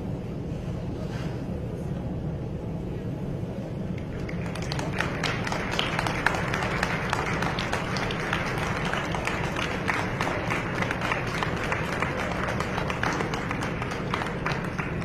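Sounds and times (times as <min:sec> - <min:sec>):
low hum of hall: 0:00.0 - 0:15.0
audience applauding: 0:03.9 - 0:15.0.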